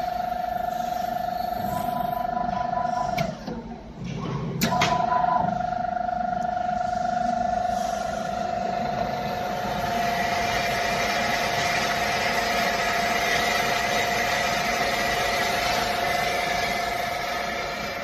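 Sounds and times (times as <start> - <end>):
spindle whine: 4.6 - 18.0.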